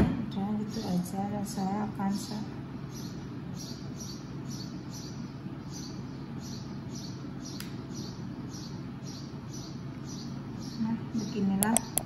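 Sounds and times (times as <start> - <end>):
sharp click: 11.6 - 12.0.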